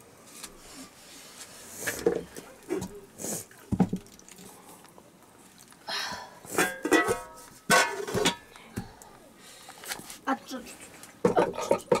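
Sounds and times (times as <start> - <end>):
metal pots and pans clanking: 6.5 - 8.5, 11.2 - 12.0.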